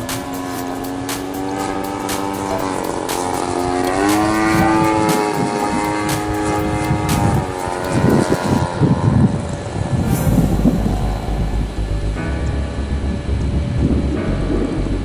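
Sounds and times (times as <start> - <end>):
model plane motor drone: 0.0 - 10.0
uneven low rumble: 9.9 - 15.0.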